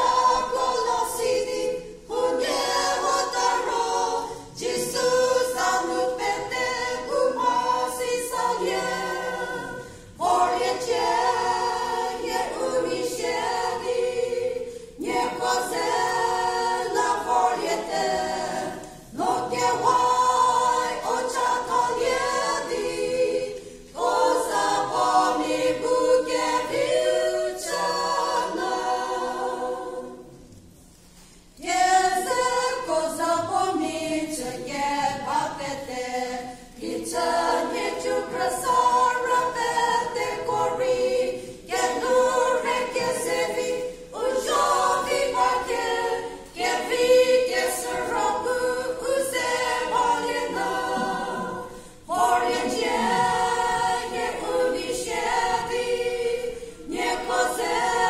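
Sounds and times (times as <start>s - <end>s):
women's choir singing a cappella: 0.0s - 58.0s
singers breathing: 51.7s - 52.1s.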